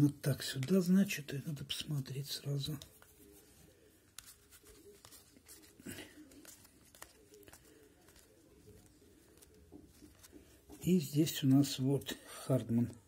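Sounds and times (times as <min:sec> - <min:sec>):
trading cards flipped by hand: 0:00.4 - 0:00.9, 0:04.1 - 0:10.8.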